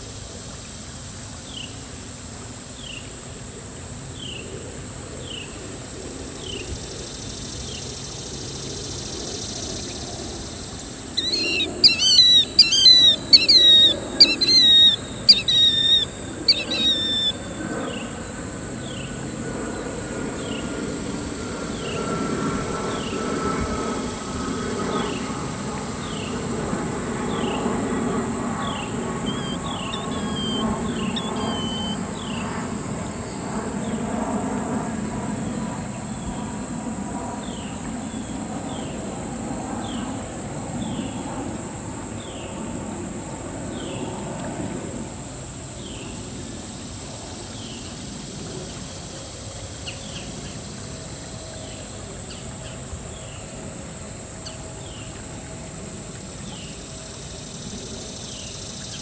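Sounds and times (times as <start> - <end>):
insects chirping: 0.1 - 59.0
bird chirps: 11.2 - 18.1, 28.6 - 32.5.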